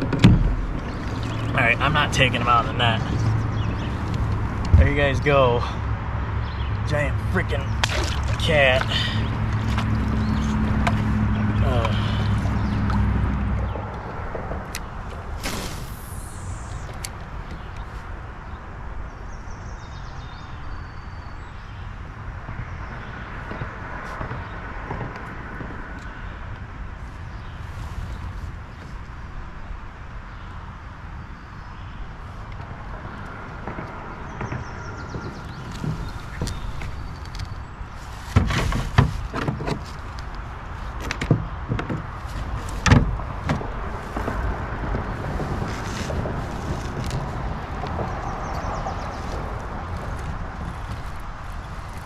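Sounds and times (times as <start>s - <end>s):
gear knocking against kayak hull: 0.0s - 1.6s, 38.3s - 49.1s
wind noise on microphone: 9.0s - 52.0s.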